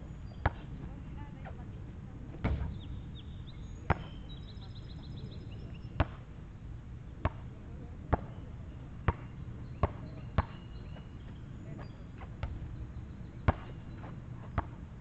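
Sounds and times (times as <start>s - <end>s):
basketball bouncing on asphalt: 0.4s - 1.6s, 2.4s - 3.3s, 3.9s - 4.2s, 5.9s - 6.2s, 7.2s - 8.4s, 9.0s - 12.8s, 13.4s - 14.8s.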